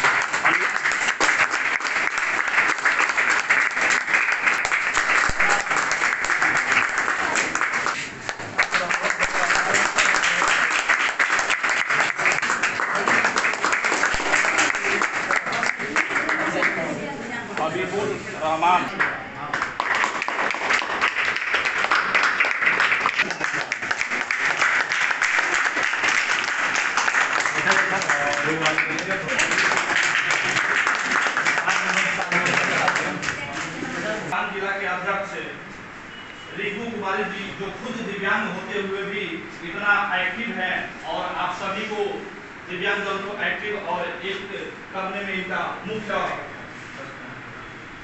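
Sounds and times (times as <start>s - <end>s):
group of people clapping: 0.0s - 17.0s, 18.9s - 33.7s.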